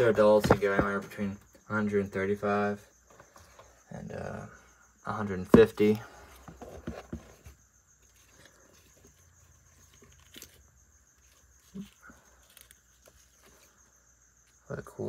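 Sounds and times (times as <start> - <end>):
faint rustles and soft taps: 5.6 - 10.6.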